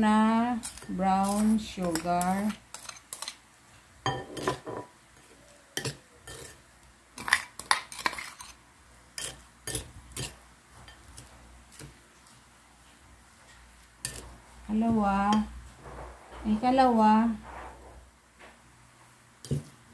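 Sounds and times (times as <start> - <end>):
metal spoon scraping ceramic bowl: 0.6 - 3.4, 5.8 - 6.6, 7.2 - 8.6.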